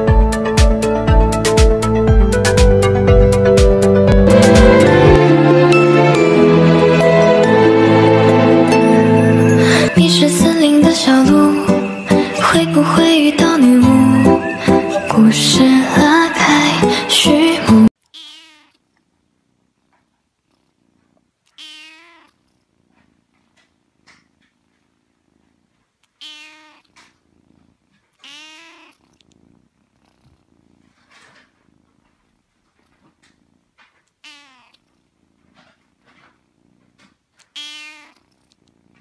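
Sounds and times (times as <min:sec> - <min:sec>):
kitten meowing: 0:18.1 - 0:18.8, 0:21.5 - 0:22.3, 0:26.2 - 0:26.9, 0:28.2 - 0:29.0, 0:34.2 - 0:34.8, 0:37.4 - 0:38.2.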